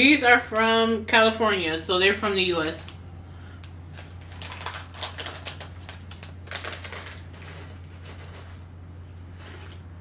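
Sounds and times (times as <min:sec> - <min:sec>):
packet rustling: 0:03.6 - 0:09.9
snack packet crinkling: 0:03.7 - 0:08.7.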